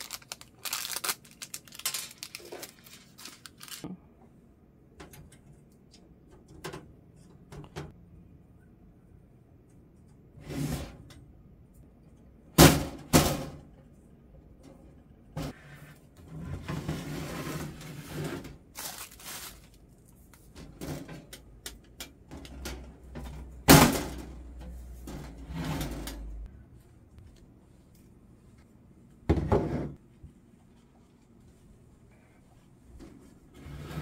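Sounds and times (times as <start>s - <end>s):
rustling: 0.0s - 3.8s, 18.8s - 20.2s.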